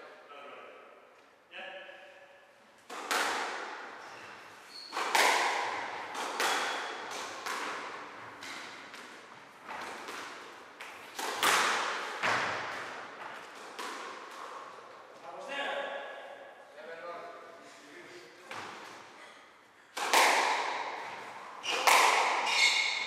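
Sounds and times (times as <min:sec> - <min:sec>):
squash ball cracking off rackets: 0:02.8 - 0:03.8, 0:04.9 - 0:14.6, 0:19.9 - 0:23.0
ball smacking walls and floor: 0:02.8 - 0:03.9, 0:04.8 - 0:14.8, 0:18.5 - 0:19.1, 0:20.0 - 0:23.0.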